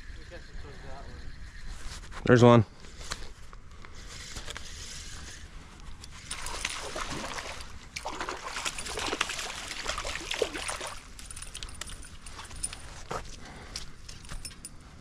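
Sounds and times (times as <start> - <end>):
water splashing and sloshing: 6.0 - 14.6.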